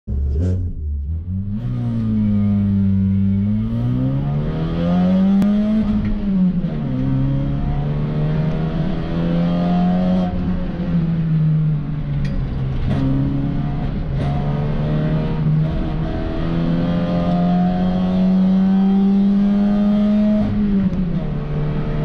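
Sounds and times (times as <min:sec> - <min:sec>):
race car engine accelerating: 0:12.7 - 0:22.0.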